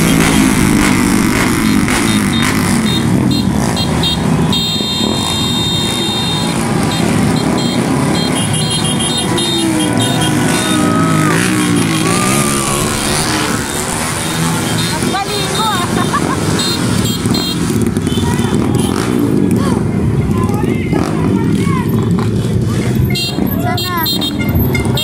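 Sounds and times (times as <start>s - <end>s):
motorcycle engines revving: 0.0s - 25.0s
long high tone: 8.4s - 15.6s.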